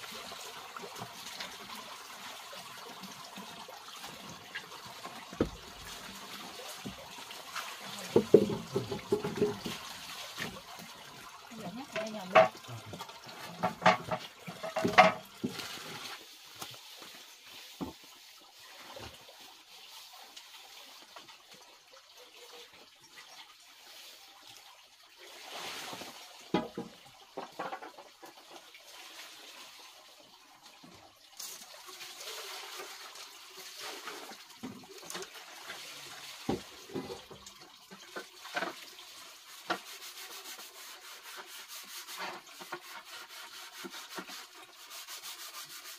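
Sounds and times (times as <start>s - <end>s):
water pouring and splashing: 0.0s - 45.9s
wood sticks knocking and rustling: 13.6s - 15.7s.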